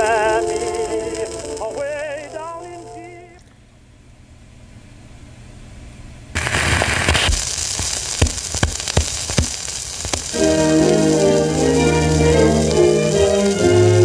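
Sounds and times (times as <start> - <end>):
sharp record pop: 0.0 - 3.1, 6.4 - 14.0
band music from record: 0.0 - 3.3, 10.1 - 14.0
record surface hiss and crackle: 0.0 - 14.0.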